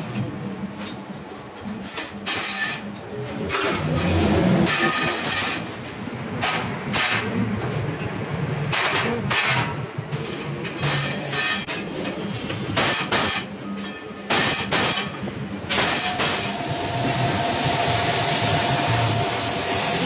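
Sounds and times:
steady mechanical hum: 0.0 - 20.0
metal discs scraping and clanking: 1.7 - 7.4, 8.7 - 19.3.

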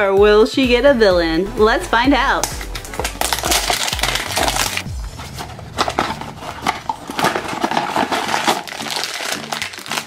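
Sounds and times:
plastic bag crinkling: 2.4 - 10.0
cardboard box opening: 3.0 - 10.0.

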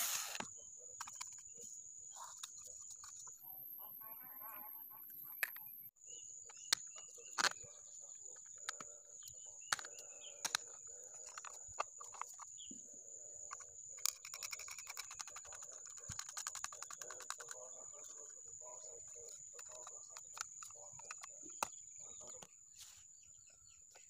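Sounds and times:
high thin whine: 0.0 - 0.4
birds chirping: 0.0 - 24.0
rapid ticking: 14.0 - 18.2.

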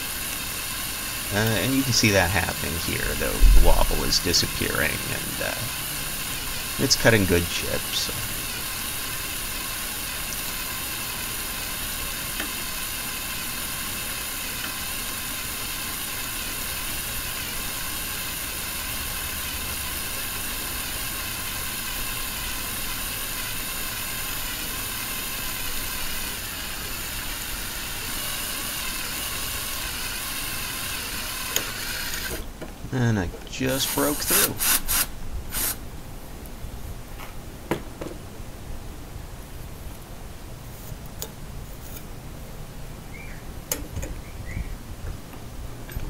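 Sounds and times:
electric drill cutting steel: 0.0 - 32.5, 33.7 - 35.8.

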